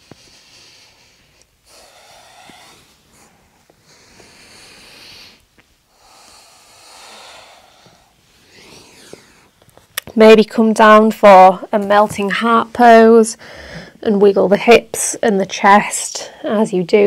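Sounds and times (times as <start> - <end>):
woman breathing slowly: 0.0 - 9.8, 13.3 - 14.0.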